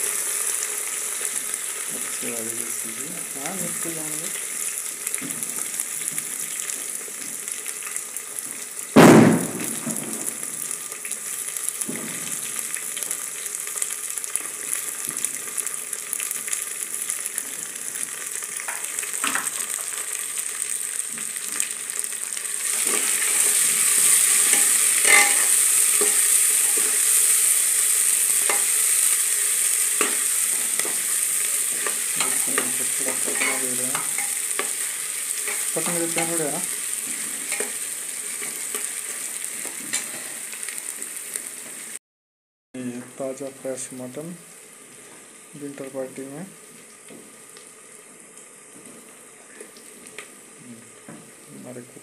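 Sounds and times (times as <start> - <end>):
vegetables sizzling in hot oil: 0.0 - 42.0, 42.8 - 52.0
loud thump: 9.0 - 10.3.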